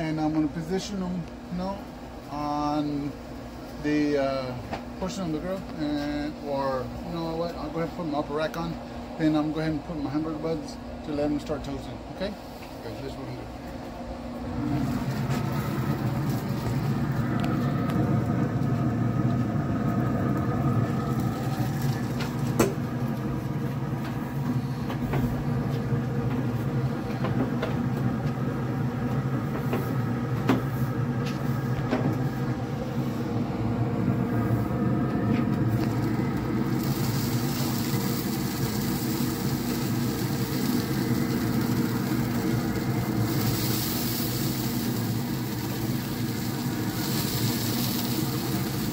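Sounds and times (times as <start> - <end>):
grill fan humming: 0.0 - 48.9
hiss: 36.6 - 48.9.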